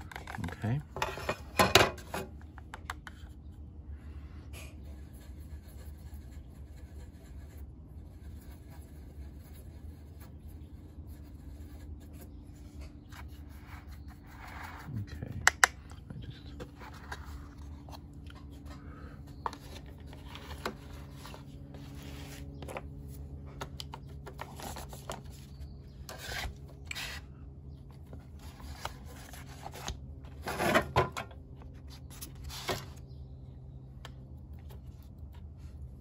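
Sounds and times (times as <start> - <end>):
low hum: 0.0 - 36.0
small taps and clicks: 2.4 - 3.4.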